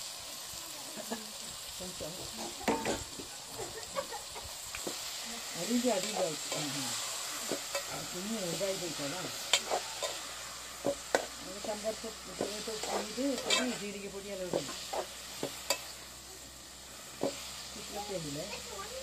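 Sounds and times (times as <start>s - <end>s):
frying sizzle: 0.0s - 19.0s
spoon stirring in metal pot: 9.4s - 16.0s.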